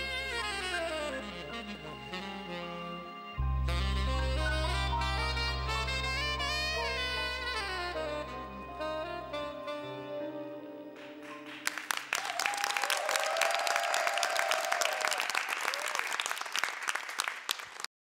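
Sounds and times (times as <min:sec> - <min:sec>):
band chord ringing: 0:00.0 - 0:11.0
audience applauding: 0:11.0 - 0:17.9.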